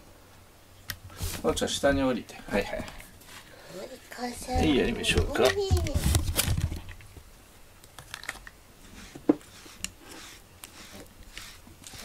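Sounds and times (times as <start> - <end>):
brush stroking cat fur: 8.8 - 12.0.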